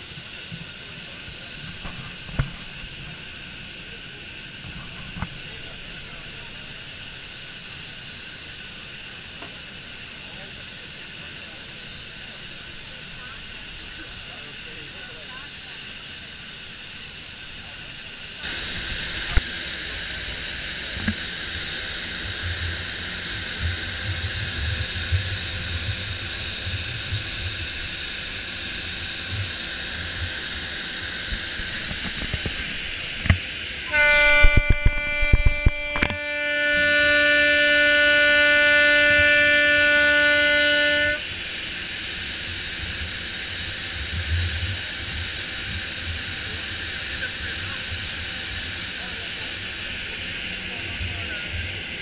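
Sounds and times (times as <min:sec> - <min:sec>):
boat engines and wind rush: 0:00.0 - 0:52.0
ship's horn long blast: 0:18.4 - 0:30.2, 0:33.8 - 0:41.4.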